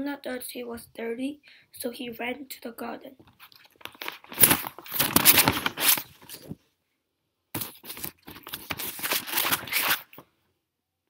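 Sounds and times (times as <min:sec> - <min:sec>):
paper rustling and crinkling: 0:03.3 - 0:06.6, 0:07.6 - 0:10.2.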